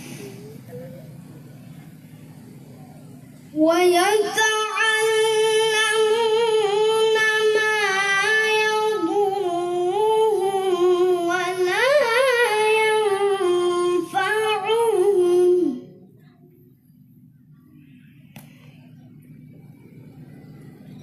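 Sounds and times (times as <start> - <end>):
child reciting melodically: 3.6 - 16.0.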